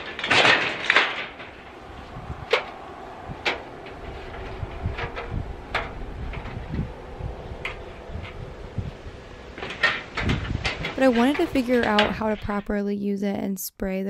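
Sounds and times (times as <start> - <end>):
metal ladder clanking: 0.0 - 6.8, 9.4 - 12.8
low steady rumble: 0.9 - 12.8.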